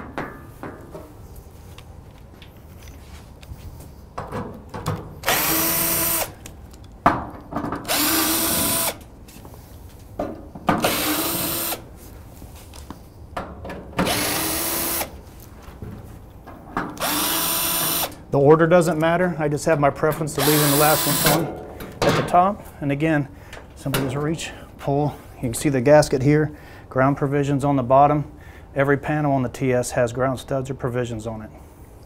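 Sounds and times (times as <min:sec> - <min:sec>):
cordless drill driving screws: 0:05.2 - 0:06.4, 0:07.8 - 0:09.1, 0:10.8 - 0:11.8, 0:14.0 - 0:15.1, 0:17.0 - 0:18.2, 0:20.4 - 0:21.4.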